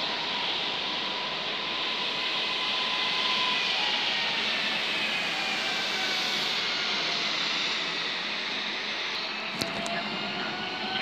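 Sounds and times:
rumble of train wheels: 0.0s - 11.0s.

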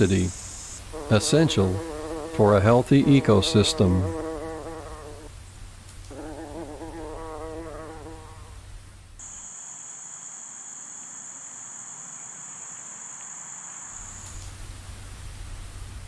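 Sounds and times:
high-pitched insect call: 0.0s - 2.3s, 9.2s - 14.6s
bumblebee buzzing in flight: 0.4s - 5.3s, 6.1s - 8.6s.

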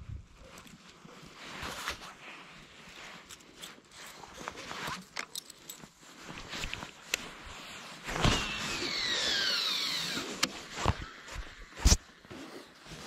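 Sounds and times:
fishing reel spool whirring: 8.3s - 10.5s.

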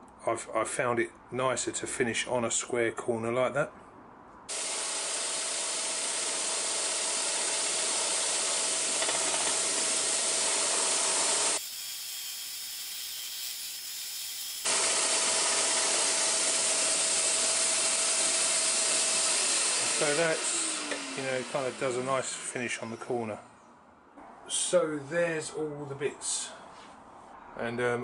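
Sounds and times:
scroll saw running: 4.5s - 23.0s.

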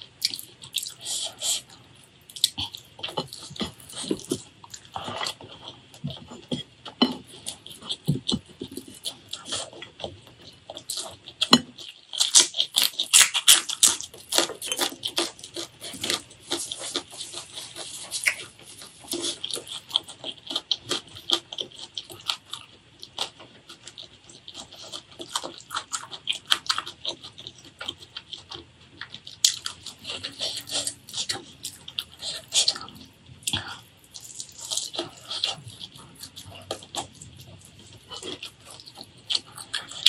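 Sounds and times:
person chewing and smacking: 0.0s - 40.0s.

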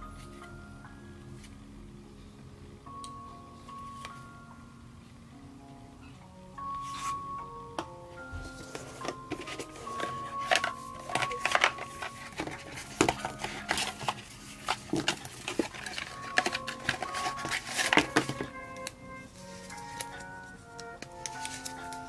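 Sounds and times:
faint background music: 0.0s - 22.0s
cardboard rustling and scraping: 8.4s - 18.6s, 19.2s - 20.5s.

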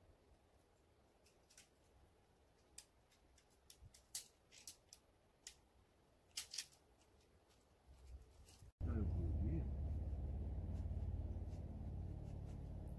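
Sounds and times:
tent pole sections clicking: 1.1s - 8.7s.

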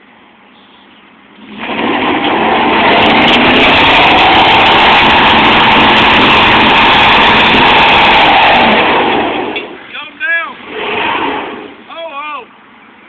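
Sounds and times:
tires spinning on pavement: 1.3s - 12.2s
truck engine revving hard: 1.4s - 11.9s.

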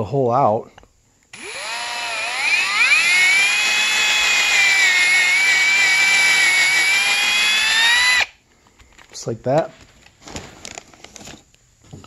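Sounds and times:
power drill whining: 1.3s - 8.4s.

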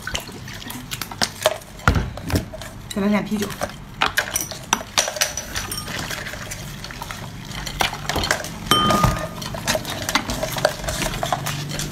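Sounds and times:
crab shells clattering in bowl: 3.5s - 11.9s
glassy ring: 5.7s - 6.1s, 8.7s - 9.4s.

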